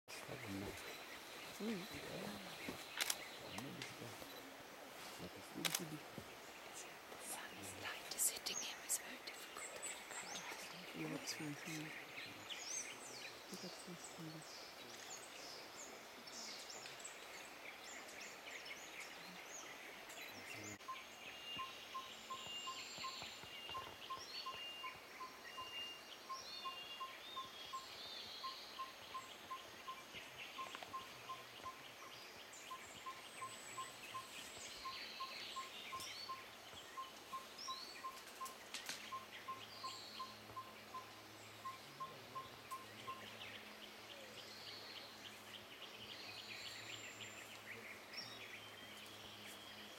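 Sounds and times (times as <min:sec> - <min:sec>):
birds chirping whistling and trilling: 0:17.5 - 0:49.9.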